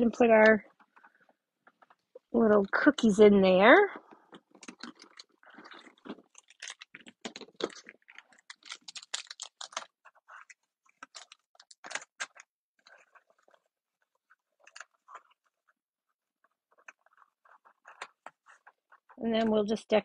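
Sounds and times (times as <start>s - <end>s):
plastic wrappers crinkling: 3.9s - 15.7s.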